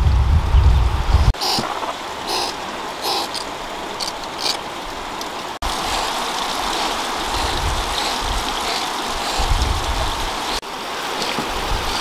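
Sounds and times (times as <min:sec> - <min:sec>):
running water rushing: 0:01.0 - 0:12.0
short hissing sounds: 0:01.4 - 0:03.4.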